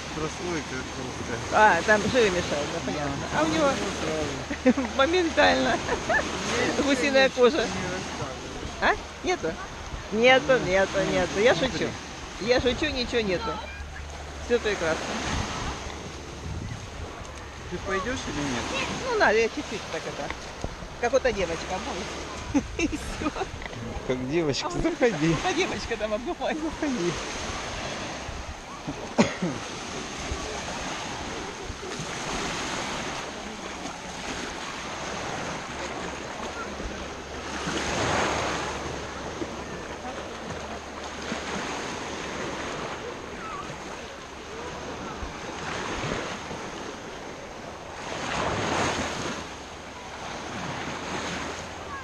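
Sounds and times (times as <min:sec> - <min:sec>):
small waves breaking on sandy shore: 0:00.0 - 0:52.0
wind buffeting microphone: 0:15.0 - 0:19.6.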